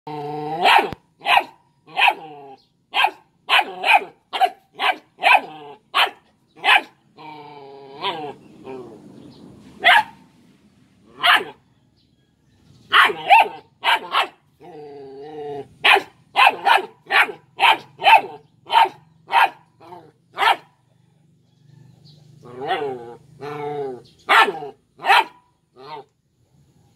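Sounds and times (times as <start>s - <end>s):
puppy growling low: 0.1s - 1.0s, 2.1s - 2.7s, 7.1s - 9.4s, 14.5s - 15.8s, 19.8s - 20.4s, 21.8s - 24.8s, 25.8s - 26.1s
puppy yapping: 24.3s - 26.1s.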